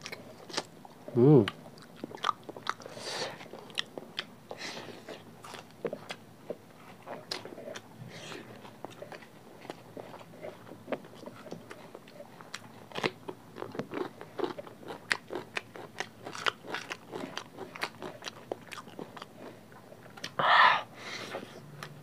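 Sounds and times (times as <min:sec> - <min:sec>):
chewing and lip-smacking: 0:00.0 - 0:20.4.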